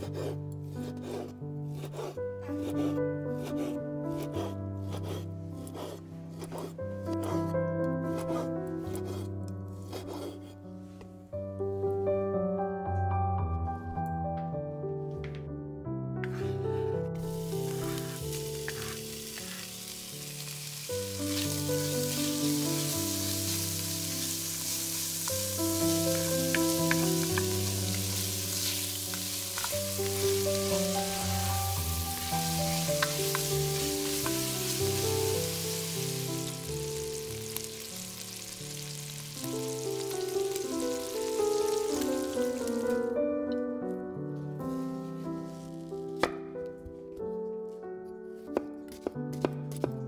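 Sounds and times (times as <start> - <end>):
background music: 0.0 - 50.0
bacon sizzling: 17.2 - 43.1, 44.7 - 46.1.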